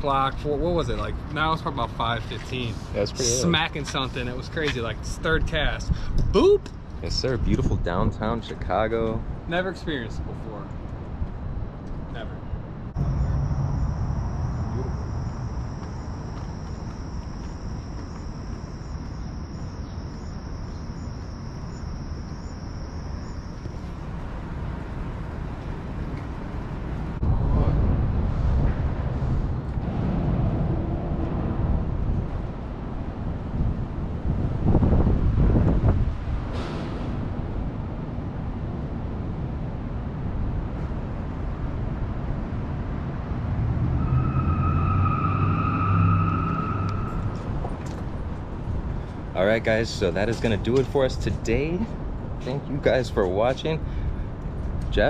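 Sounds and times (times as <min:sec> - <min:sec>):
low city rumble: 0:00.0 - 0:55.0
engine hum: 0:10.7 - 0:55.0
high whine: 0:12.9 - 0:24.4, 0:43.5 - 0:48.4
crickets trilling: 0:13.0 - 0:25.4.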